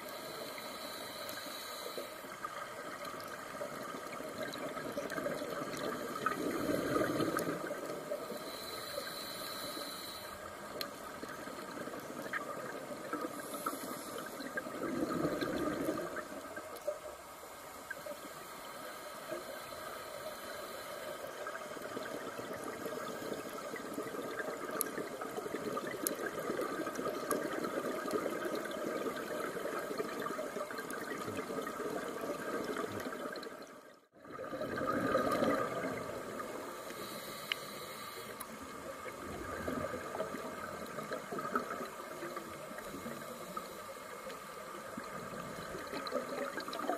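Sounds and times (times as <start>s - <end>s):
underwater watery hiss: 0.0s - 33.6s, 34.3s - 46.9s
diver's exhaled bubbles gurgling: 2.8s - 8.4s, 11.1s - 16.7s, 21.5s - 36.7s, 38.9s - 43.3s.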